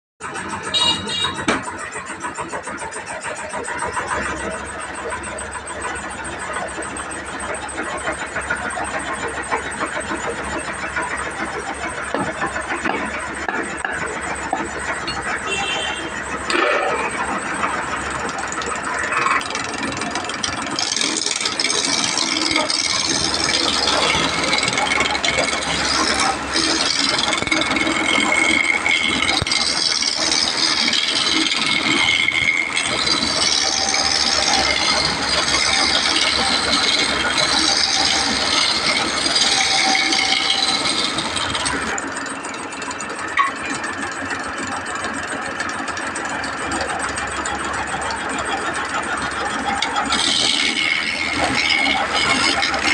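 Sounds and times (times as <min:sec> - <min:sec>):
wood lathe running: 0:00.2 - 0:52.9
turning tool rasping on wood: 0:00.6 - 0:42.8, 0:43.7 - 0:52.9.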